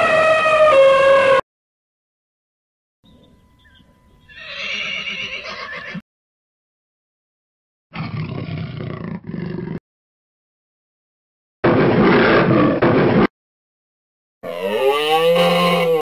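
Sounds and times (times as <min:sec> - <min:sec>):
horse whinnying: 0:04.3 - 0:06.0
jaguar growling: 0:08.0 - 0:09.8.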